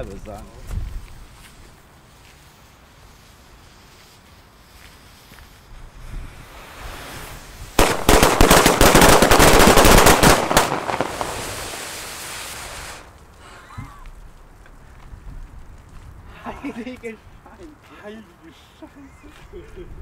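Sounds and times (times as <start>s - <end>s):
firecrackers crackling bangs: 6.2s - 13.1s.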